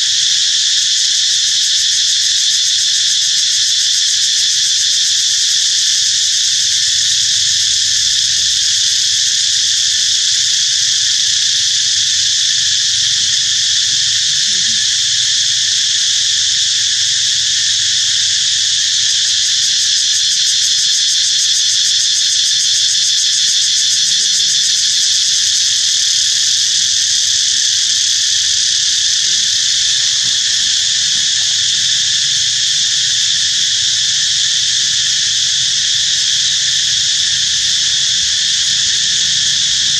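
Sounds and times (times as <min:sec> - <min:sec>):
insects buzzing: 0:00.0 - 0:39.9.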